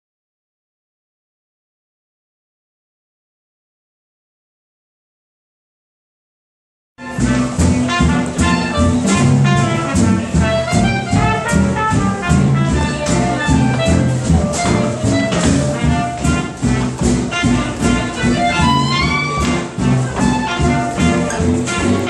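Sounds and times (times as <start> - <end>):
double bass: 7.0 - 22.0
horn melody: 7.0 - 22.0
jazz band playing swing: 7.0 - 22.0.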